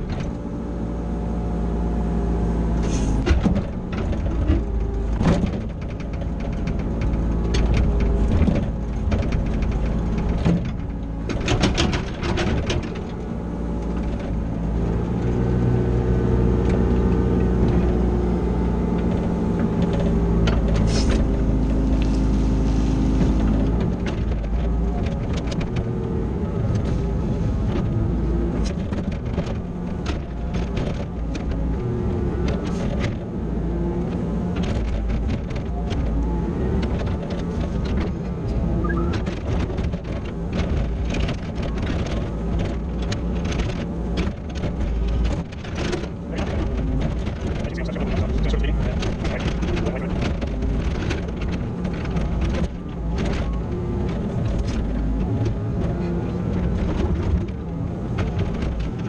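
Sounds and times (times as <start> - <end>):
excavator diesel engine and hydraulics: 0.0 - 59.0
bucket and tracks clanking: 2.8 - 15.6, 34.6 - 59.0.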